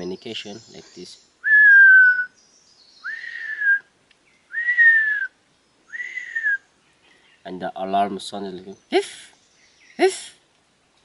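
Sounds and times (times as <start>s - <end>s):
man whistling animal call: 1.4s - 2.4s, 3.0s - 3.9s, 4.5s - 6.6s.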